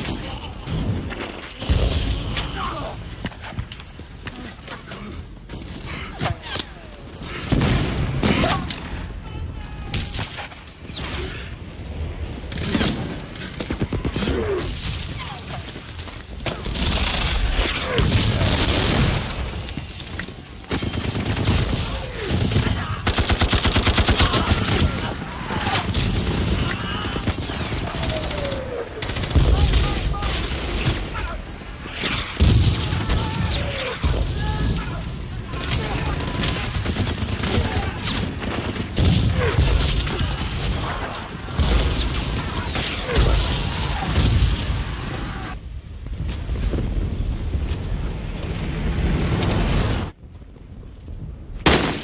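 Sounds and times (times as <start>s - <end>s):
gunshots: 12.4s - 45.6s, 51.6s - 52.0s
rapid automatic gunfire: 20.6s - 31.0s, 35.5s - 40.2s
soldiers shouting: 21.8s - 31.6s, 32.7s - 45.6s
rifle fire: 51.6s - 52.0s.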